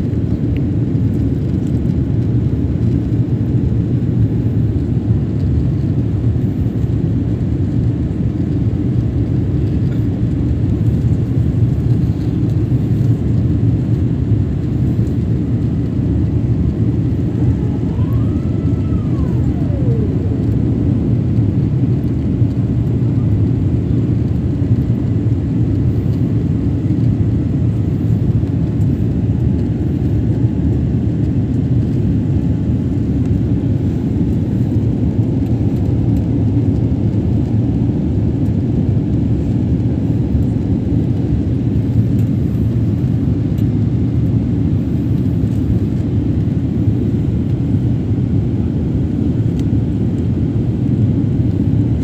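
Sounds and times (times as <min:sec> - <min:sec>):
jet airliner cabin rumble: 0:00.0 - 0:52.0
faint rising and falling tone: 0:17.3 - 0:20.8.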